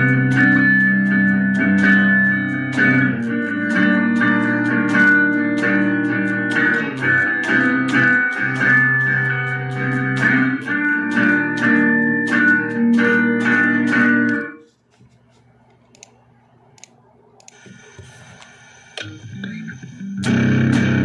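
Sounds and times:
electric guitar riff: 0.0s - 14.6s, 19.0s - 21.0s
faint amplifier hum: 0.0s - 21.0s.

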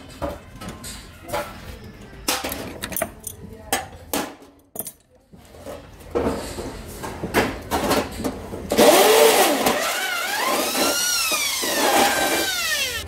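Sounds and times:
electric drill whine: 9.8s - 13.0s.

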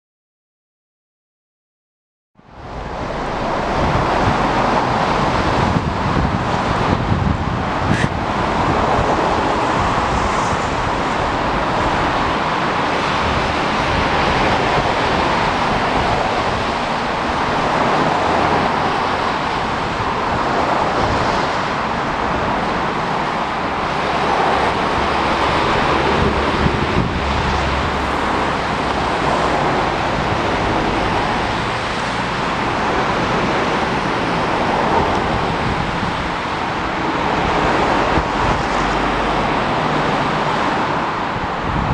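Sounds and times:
steady outdoor rushing noise: 2.4s - 41.9s.

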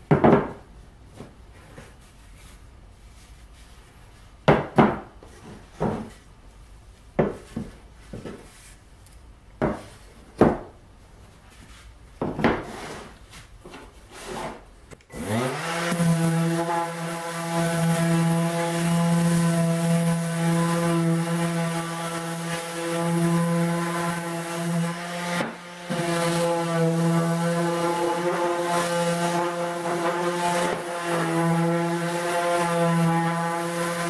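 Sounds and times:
orbital sander whining: 15.1s - 34.0s.

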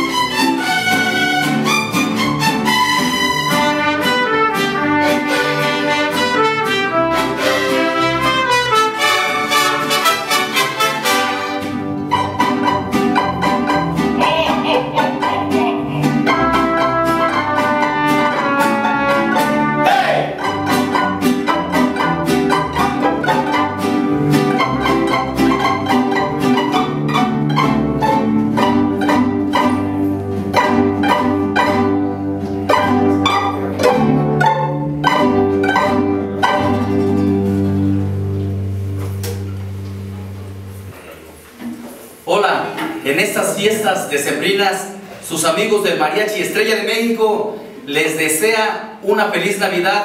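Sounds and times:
violins playing melody: 0.0s - 39.0s
strummed rhythm and bass: 0.0s - 41.8s.

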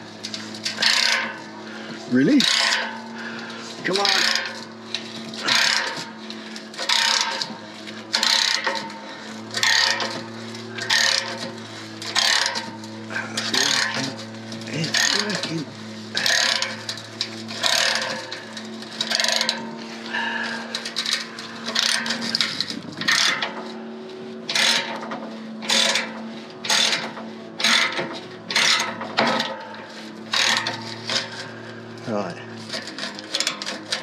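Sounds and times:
steady low hum: 0.0s - 34.0s
ratchet wrench clicking and grinding: 0.7s - 1.4s, 2.2s - 3.1s, 3.9s - 6.0s, 6.8s - 7.5s, 8.1s - 8.9s, 9.5s - 10.2s, 10.8s - 12.7s, 13.4s - 18.3s, 19.0s - 19.6s, 24.5s - 25.0s.

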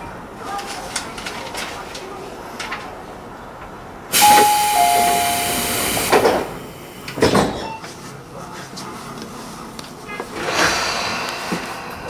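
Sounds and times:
compressed air hiss: 4.1s - 7.1s
two-note chime: 4.2s - 6.2s.

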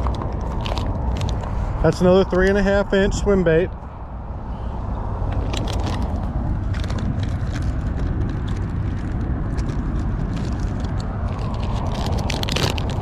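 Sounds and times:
plastic packaging crinkling: 0.0s - 1.6s, 5.4s - 13.0s
steady low rumble: 0.0s - 13.0s.

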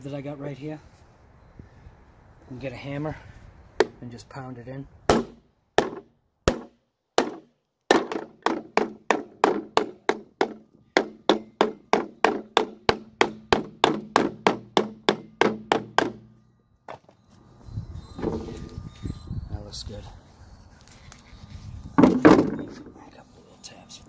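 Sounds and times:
hammer striking wood block: 5.1s - 16.2s, 22.0s - 22.9s.

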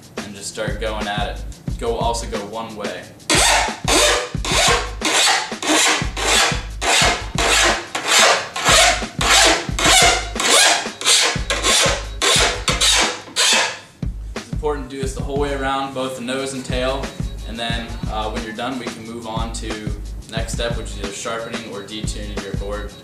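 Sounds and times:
hand file rasping on steel edge: 3.3s - 13.9s.

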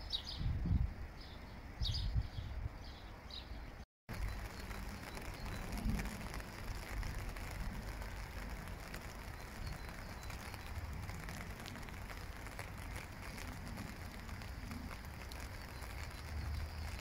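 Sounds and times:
wind rumble on microphone: 0.0s - 3.0s, 4.1s - 17.0s
steady hiss: 4.1s - 17.0s.

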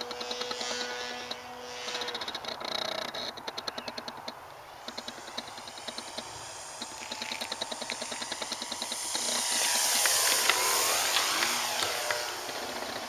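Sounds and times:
model airplane motor whine: 0.0s - 13.0s
rapid even ticking: 0.0s - 13.0s.

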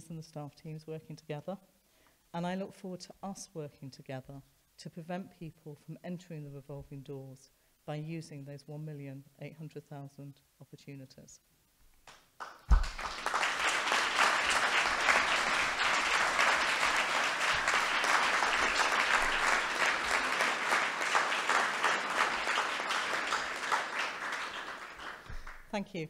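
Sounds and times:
audience applauding: 12.4s - 25.7s.

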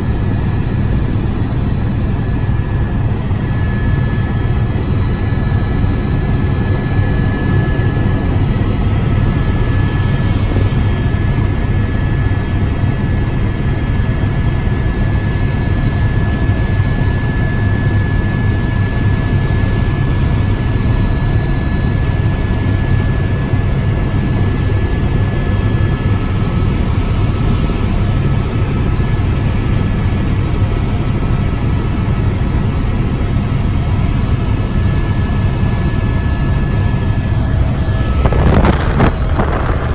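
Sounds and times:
high-pitched whine: 0.0s - 12.7s, 34.9s - 39.9s
helicopter rotor drone: 0.0s - 39.9s.

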